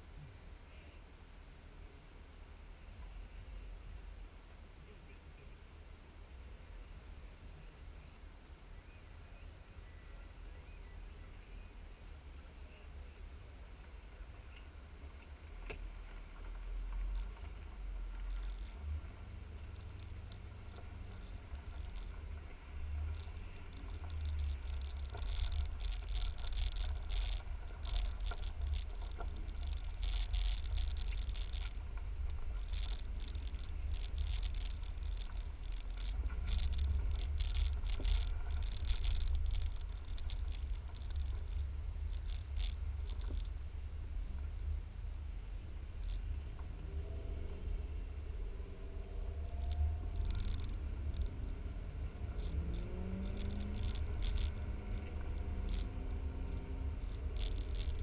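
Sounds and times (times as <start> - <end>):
muffled car engine and tyres: 0.0 - 58.0
faint crackling ticks: 13.8 - 58.0.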